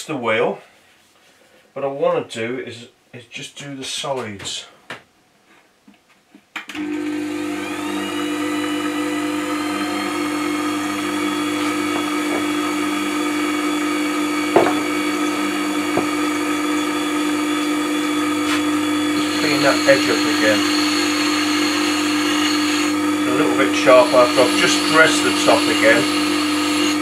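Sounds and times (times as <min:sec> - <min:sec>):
sharpener motor whine and hum: 0:06.8 - 0:27.0.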